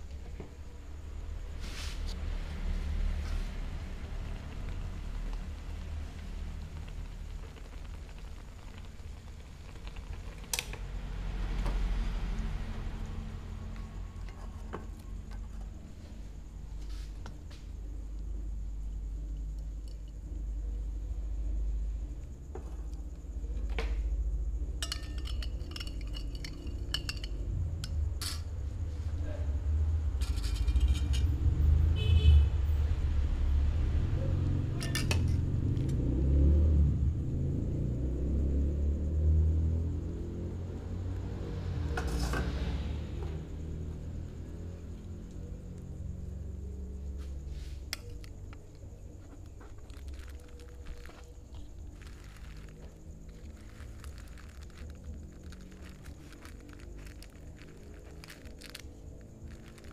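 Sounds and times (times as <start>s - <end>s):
stove burner rumble: 2.9s - 20.7s, 22.0s - 28.6s
noodles crackling in pan: 4.0s - 11.7s, 47.9s - 59.9s
metal clinking against glass plate: 24.8s - 27.4s
utensil stirring clicks and scrapes: 24.8s - 27.4s, 49.6s - 59.9s.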